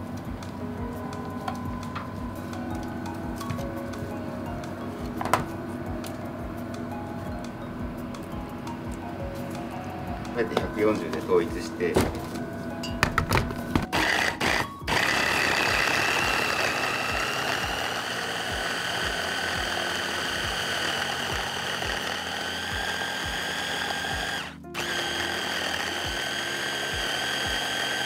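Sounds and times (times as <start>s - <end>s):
hand blender motor whine: 13.6s - 28.0s.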